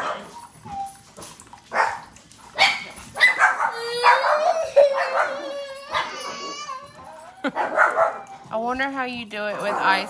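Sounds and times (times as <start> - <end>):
girl crying and wailing: 3.7 - 7.6.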